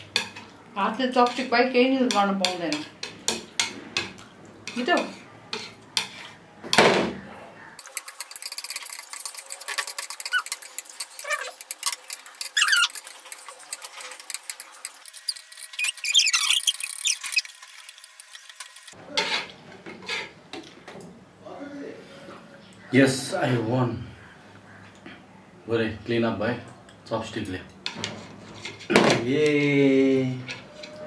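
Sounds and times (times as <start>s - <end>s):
short high squeaks: 12.5s - 13.0s, 15.1s - 17.5s.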